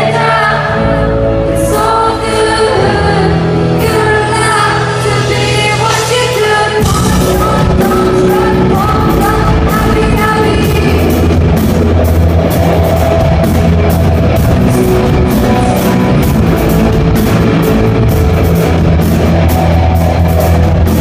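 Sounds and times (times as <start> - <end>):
woman singing: 0.0 - 11.6
live rock band: 0.0 - 21.0.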